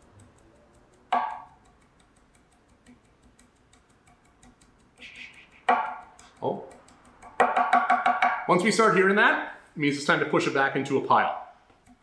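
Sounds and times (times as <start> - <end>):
heavy knife knock: 1.1 - 1.5, 5.7 - 6.0, 7.4 - 8.5
knife tapping on wooden board: 1.1 - 1.6, 5.6 - 8.5.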